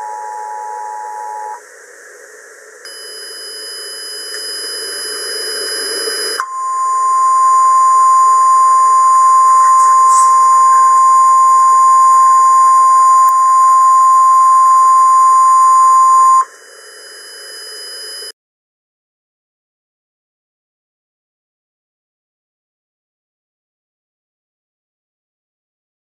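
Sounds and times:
steady high beep: 0:02.9 - 0:16.5.

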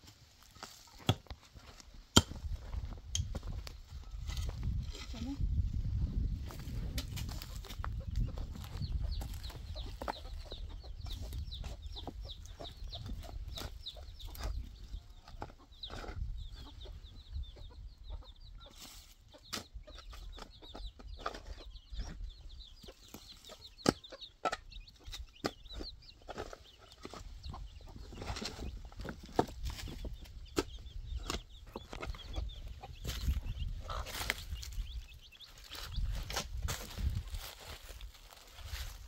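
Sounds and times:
birds chirping: 0:00.0 - 0:39.0.

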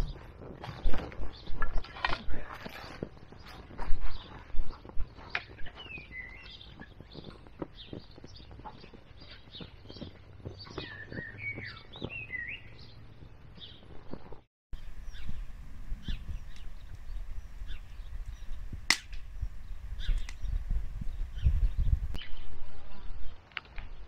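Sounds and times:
songbirds chirping: 0:00.0 - 0:24.0
fire crackling and popping: 0:13.6 - 0:22.2.

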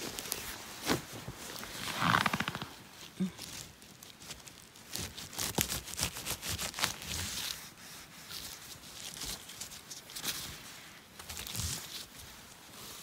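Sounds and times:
vegetation rustling and snapping: 0:00.0 - 0:07.5, 0:11.2 - 0:12.2.

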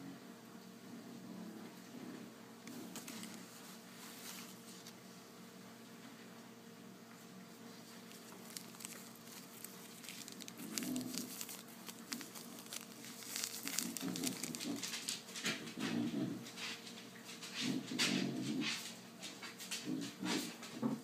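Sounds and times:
plastic bags crinkling: 0:02.7 - 0:05.0, 0:07.9 - 0:15.4.

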